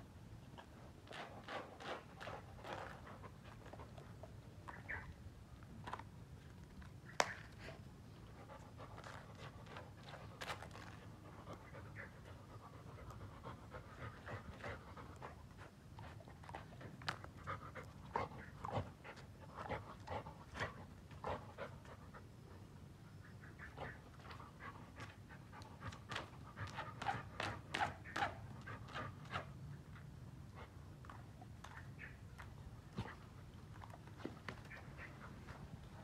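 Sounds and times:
dog panting: 7.6s - 22.5s.

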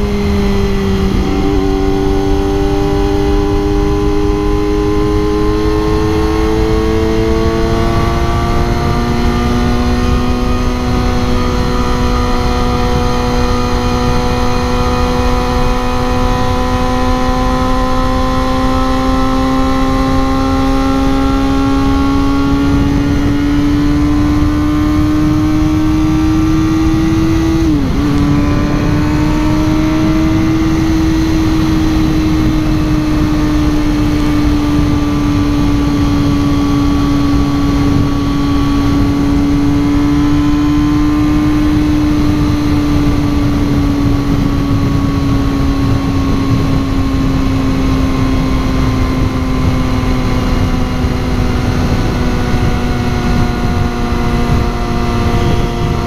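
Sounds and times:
motorcycle engine at speed: 0.0s - 56.0s
wind rush over microphone: 0.0s - 56.0s.

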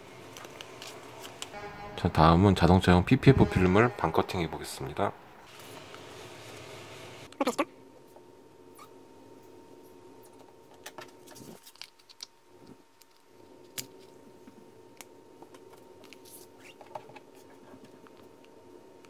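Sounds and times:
low steady hum: 0.0s - 10.7s
film being peeled: 0.3s - 1.6s, 10.9s - 12.3s.

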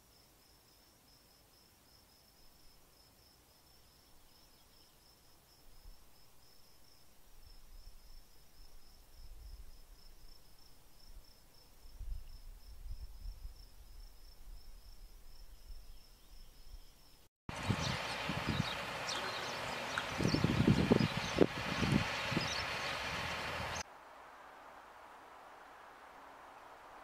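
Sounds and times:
insect chirping: 0.0s - 17.3s
outdoor noise: 0.0s - 27.0s.

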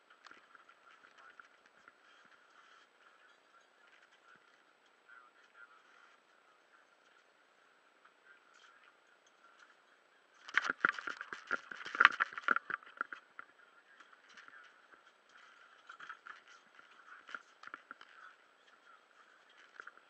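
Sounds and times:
underwater clicking and crackling: 0.0s - 4.6s, 10.4s - 20.0s.

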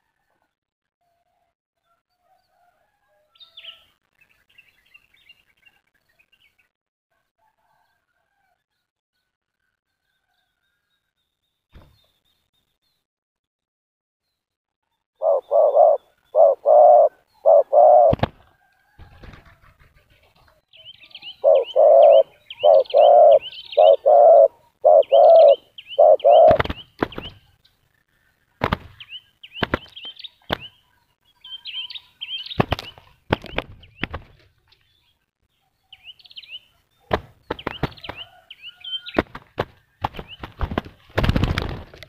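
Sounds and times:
small birds chirping: 14.3s - 18.2s, 19.9s - 41.6s
doves cooing: 15.2s - 18.3s, 21.3s - 27.2s
wing flapping: 17.9s - 20.4s, 25.2s - 27.4s, 28.6s - 29.0s, 29.6s - 30.7s, 32.6s - 34.5s, 37.1s - 38.4s, 39.1s - 42.0s.

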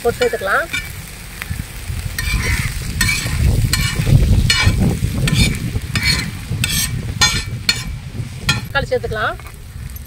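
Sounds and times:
frying sizzle: 0.0s - 10.0s
metal spatula scraping pan: 2.2s - 8.7s.

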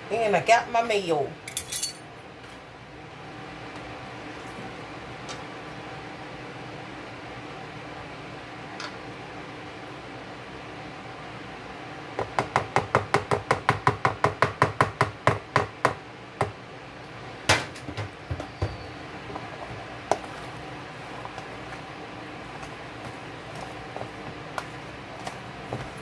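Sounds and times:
steady low hum: 15.2s - 26.0s.

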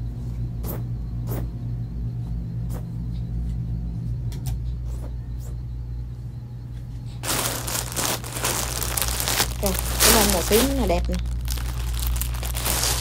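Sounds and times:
steady low hum: 0.0s - 13.0s
plastic bags crinkling: 7.2s - 13.0s.

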